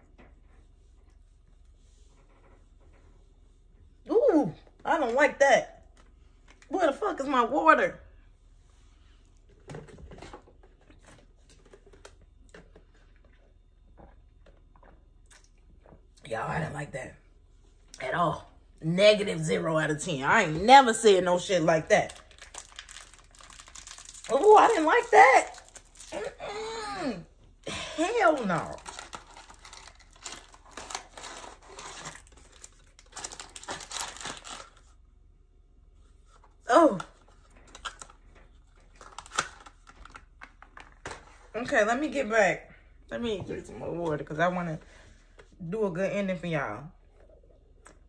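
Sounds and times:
cardboard box crinkling and tearing: 22.1s - 26.4s, 28.4s - 34.8s.

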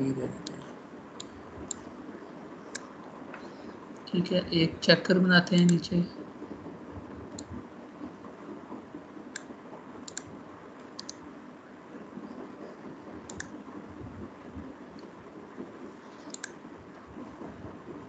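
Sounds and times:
low background noise: 0.0s - 18.0s
computer mouse clicking: 9.4s - 10.3s, 11.0s - 11.2s, 13.3s - 13.6s, 16.3s - 16.6s.

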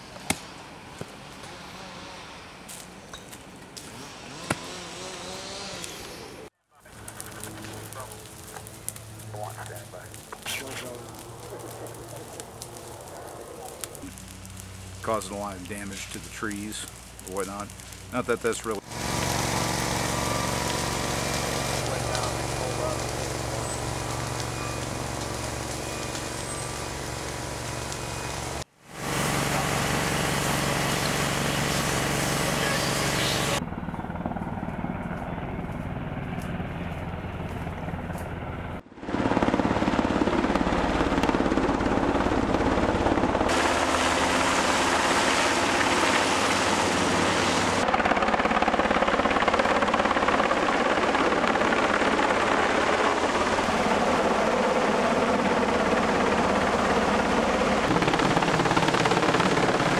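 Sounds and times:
helicopter rotor and engine: 18.1s - 59.9s.

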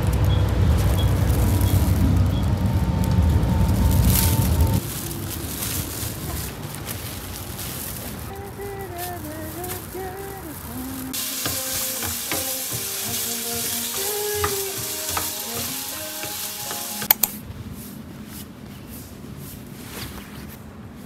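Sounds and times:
vegetables sizzling in a frying pan: 0.0s - 17.3s
wooden spatula stirring: 11.2s - 17.3s
sharp clicks: 17.0s - 17.4s.

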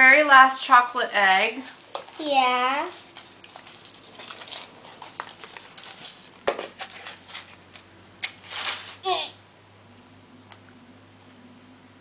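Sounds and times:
foil wrapper crinkling: 1.2s - 9.1s.

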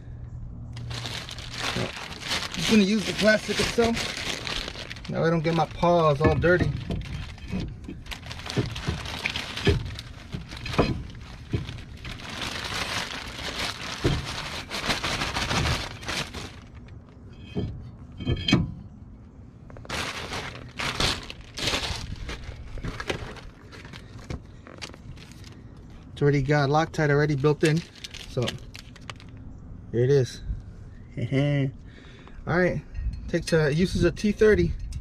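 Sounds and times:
plastic bag crinkling: 0.8s - 16.9s, 19.8s - 25.6s, 27.3s - 29.4s.

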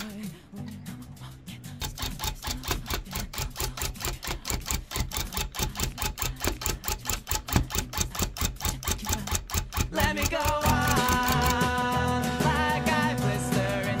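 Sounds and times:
tufting gun clacking: 1.8s - 11.8s.

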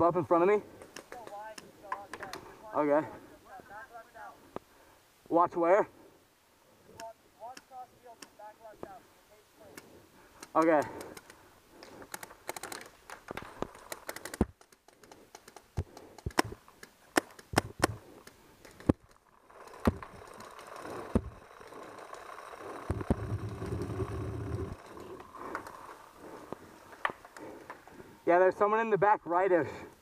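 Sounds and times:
paintball markers firing: 10.4s - 19.1s
low rumbling: 19.2s - 28.2s.

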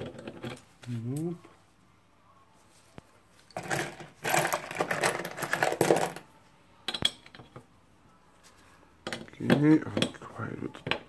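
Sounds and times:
metal parts clattering in tub: 3.5s - 6.2s.

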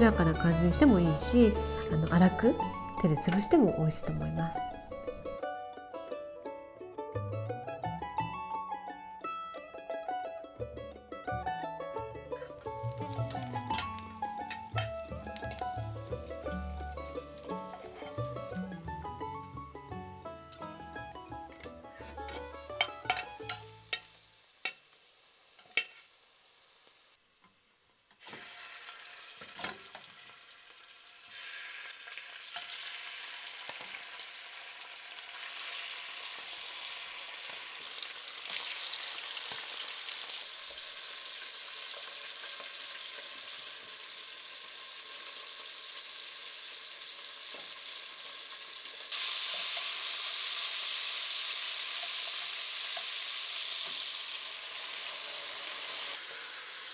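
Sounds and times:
chicken sizzling in oil: 12.4s - 56.9s
tongs clinking on metal pot: 13.0s - 15.7s, 22.0s - 24.8s, 25.6s - 26.0s.

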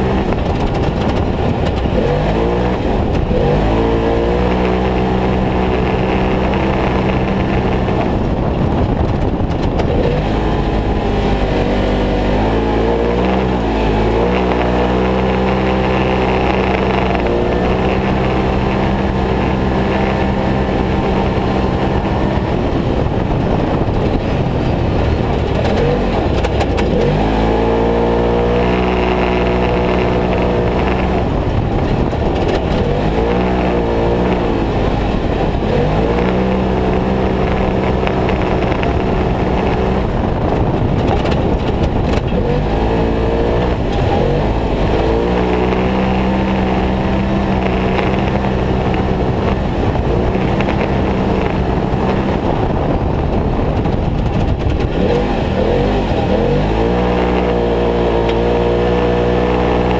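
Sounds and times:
off-road vehicle engine running hard: 0.0s - 59.9s.

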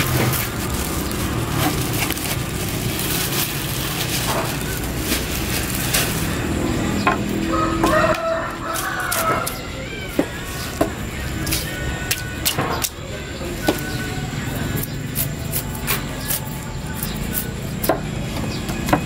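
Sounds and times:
steady background noise: 0.0s - 19.0s.

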